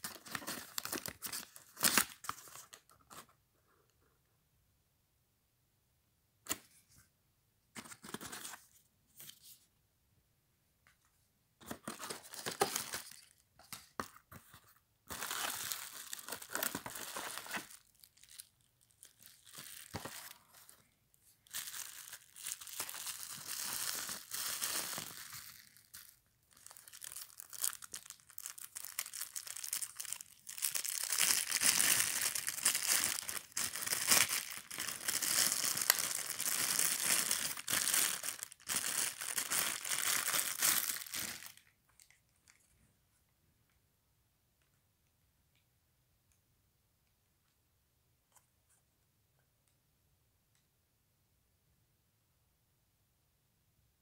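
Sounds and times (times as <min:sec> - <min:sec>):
plastic bag rustling: 0:26.7 - 0:41.6.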